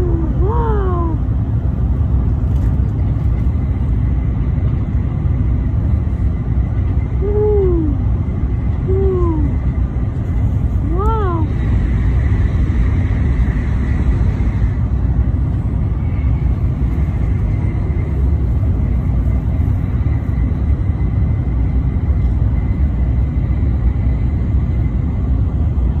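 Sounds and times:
train rumbling at speed: 0.0s - 26.0s.

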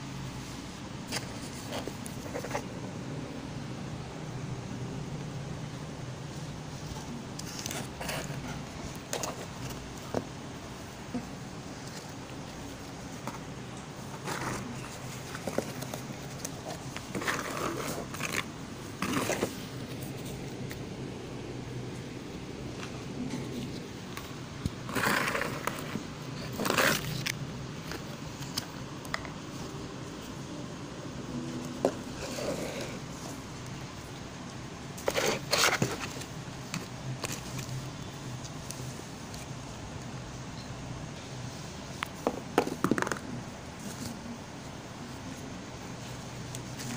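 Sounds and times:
steady low hum: 0.0s - 46.9s
plastic doll chair rustling: 6.8s - 10.4s, 11.2s - 20.8s, 23.5s - 28.7s, 35.0s - 37.7s.

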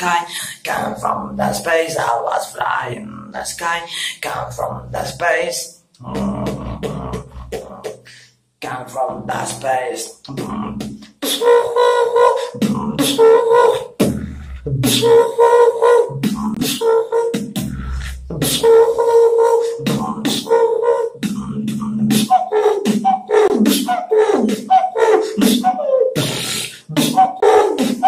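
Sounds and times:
person beatboxing: 0.0s - 28.0s.

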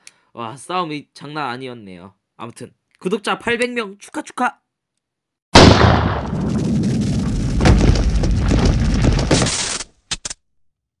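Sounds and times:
explosion boom: 5.6s - 9.5s
rumbling crackling debris: 5.6s - 9.6s.

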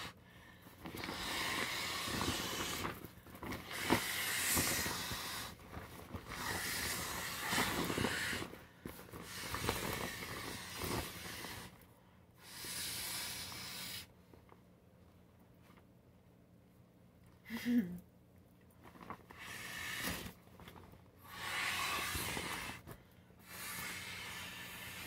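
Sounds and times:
breath blown into valve: 1.0s - 2.9s, 6.4s - 8.5s, 12.4s - 14.1s, 19.4s - 20.4s, 21.2s - 22.8s, 23.4s - 25.0s.

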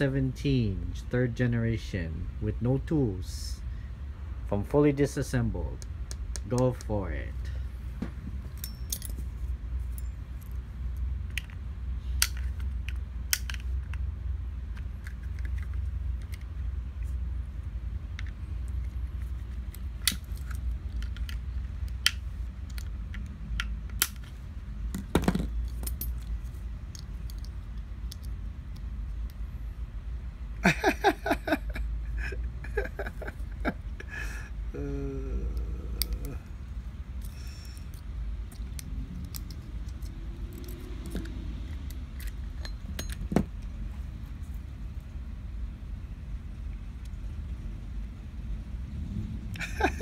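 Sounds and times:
low steady rumble: 0.0s - 50.0s
steady low hum: 0.0s - 50.0s
pistol parts clicking: 5.8s - 7.0s, 8.5s - 9.3s, 9.9s - 16.7s, 18.0s - 29.4s, 37.1s - 43.8s.

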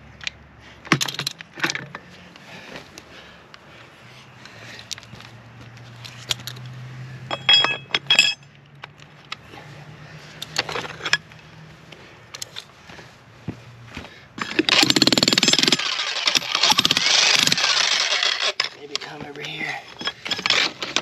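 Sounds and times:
steel chisel bits clinking: 7.3s - 8.4s, 14.4s - 21.0s.

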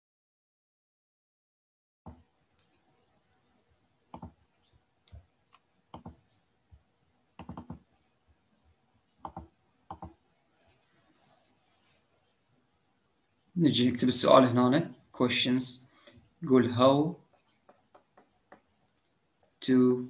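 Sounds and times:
faint computer clicks: 4.1s - 4.4s, 5.0s - 6.2s, 7.4s - 7.8s, 9.2s - 10.8s.

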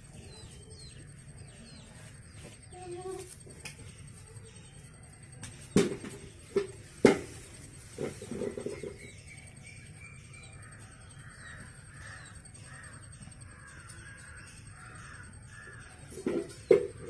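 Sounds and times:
crows cawing: 10.6s - 17.0s.

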